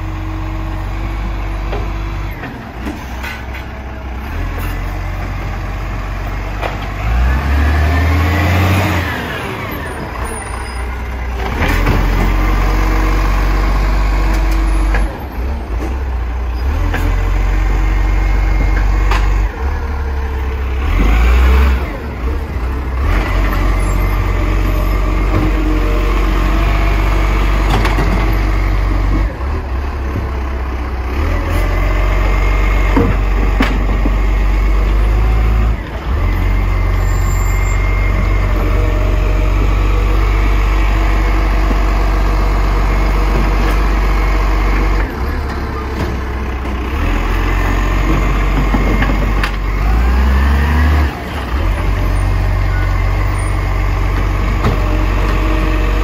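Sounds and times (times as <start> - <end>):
diesel engine revving: 0.0 - 56.0.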